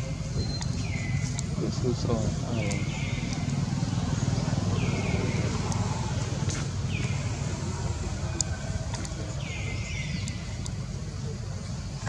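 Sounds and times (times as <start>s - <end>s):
faint clicks: 2.7s - 3.6s, 5.6s - 7.2s, 8.3s - 9.2s, 10.2s - 10.8s.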